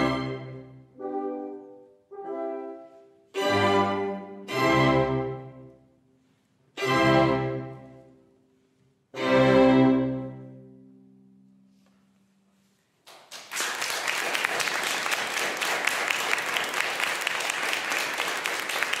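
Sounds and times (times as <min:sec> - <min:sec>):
audience applauding: 0:13.1 - 0:19.0.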